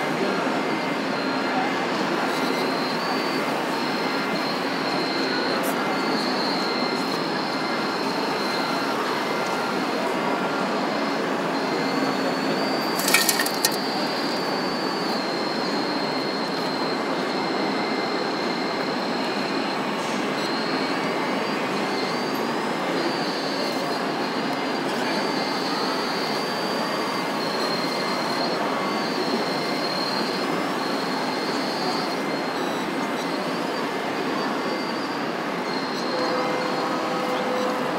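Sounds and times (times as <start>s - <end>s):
high whine of hydraulic pump: 0.0s - 37.9s
machine noise: 0.9s - 37.9s
sharp short clatter: 13.0s - 13.9s.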